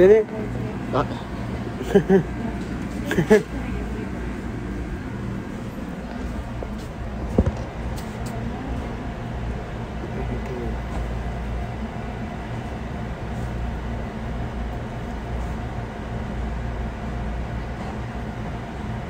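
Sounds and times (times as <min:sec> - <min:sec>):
kitchen machinery rumble and hum: 0:00.0 - 0:19.0.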